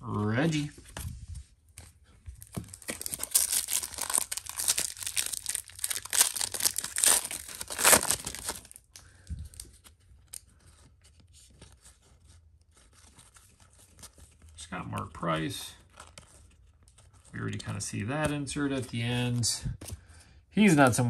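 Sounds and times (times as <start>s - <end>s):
foil wrapper tearing and crinkling: 2.5s - 8.9s.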